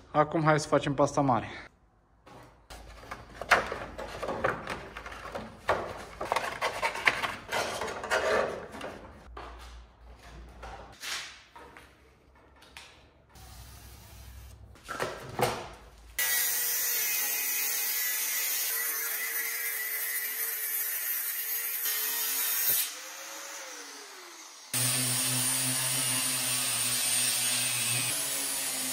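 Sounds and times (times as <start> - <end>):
handling scrapes and knocks: 2.2 - 12.7
electric power tool running: 22.8 - 28.9.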